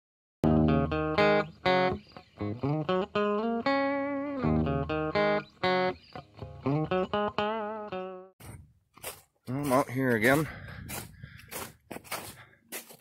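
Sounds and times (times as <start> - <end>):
guitar melody plucked: 0.4 - 8.3.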